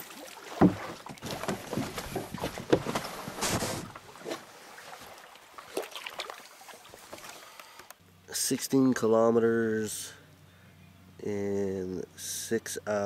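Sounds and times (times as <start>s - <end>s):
canoe hull knocking on rocks: 0.6s - 4.0s
rustling shuffle: 0.6s - 4.4s.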